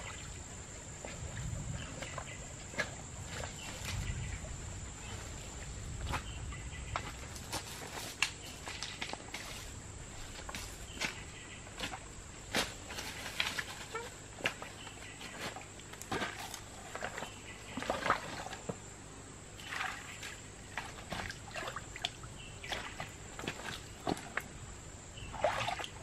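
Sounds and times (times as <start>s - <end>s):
trickling stream: 0.0s - 26.0s
small splashes: 11.8s - 18.7s, 19.6s - 24.6s, 25.2s - 26.0s.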